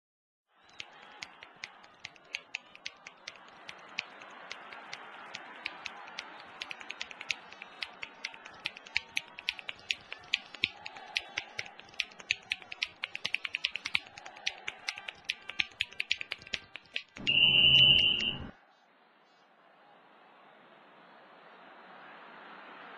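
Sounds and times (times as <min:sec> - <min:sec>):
finger snapping: 0:00.7 - 0:18.4
shrill blast: 0:17.2 - 0:18.5.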